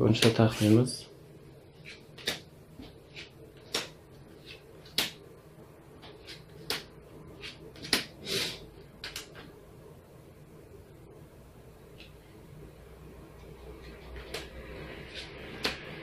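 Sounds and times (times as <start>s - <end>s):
playing cards slapping on table: 1.8s - 5.2s, 6.0s - 8.2s, 14.2s - 16.0s.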